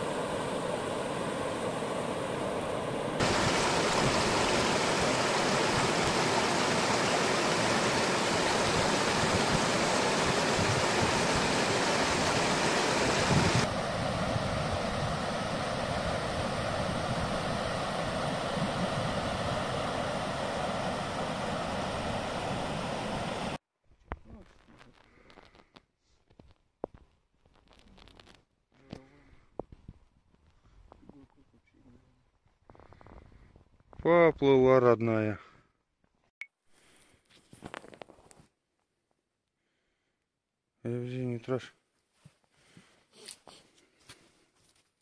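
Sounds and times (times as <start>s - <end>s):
water rushing over rocks: 0.0s - 14.0s.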